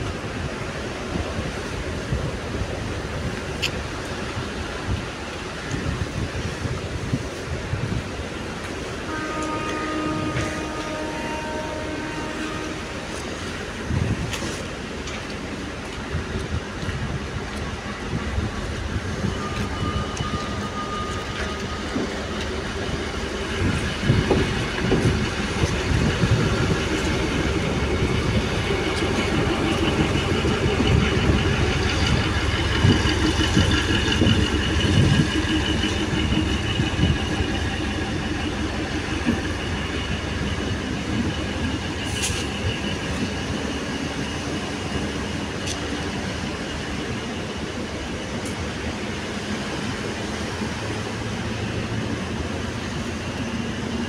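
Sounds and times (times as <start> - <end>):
train wheels clattering on rails: 0.0 - 54.0.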